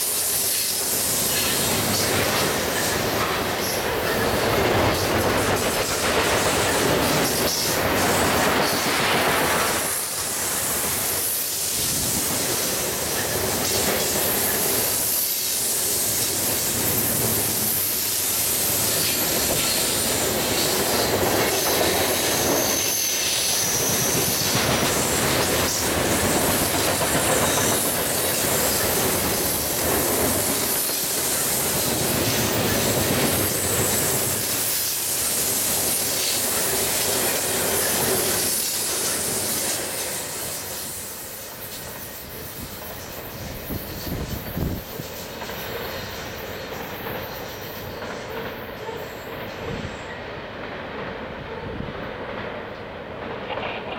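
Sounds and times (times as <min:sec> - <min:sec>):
freight train rumbling past: 0:00.0 - 0:53.9
high wheel squeal: 0:13.0 - 0:48.0.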